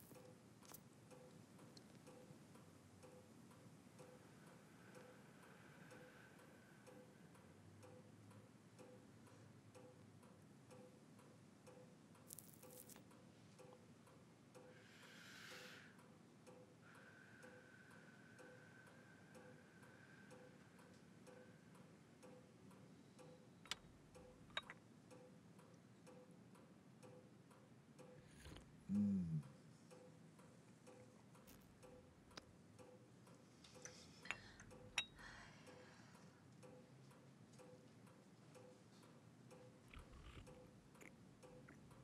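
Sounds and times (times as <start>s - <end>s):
clock ticking: 20.3s - 35.8s.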